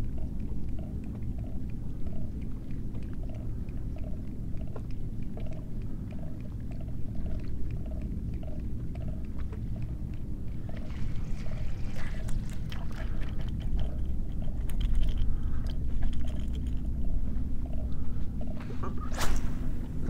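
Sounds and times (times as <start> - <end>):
water splashes: 10.5 - 15.2.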